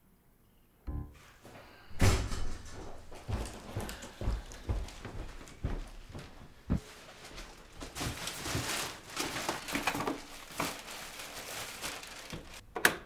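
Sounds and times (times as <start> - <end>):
plastic bags rustling: 3.4 - 12.6.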